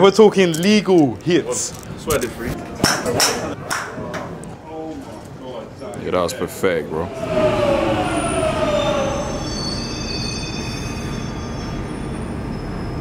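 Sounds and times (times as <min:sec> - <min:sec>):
electric train whine: 0:06.7 - 0:13.0
steady train rumble: 0:06.8 - 0:13.0
high squealing tones: 0:06.9 - 0:13.0.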